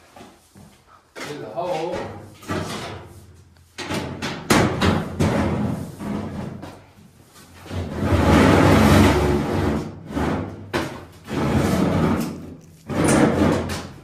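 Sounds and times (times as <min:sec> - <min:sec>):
sheet-metal pipe scraping and rattling: 0:07.6 - 0:14.0.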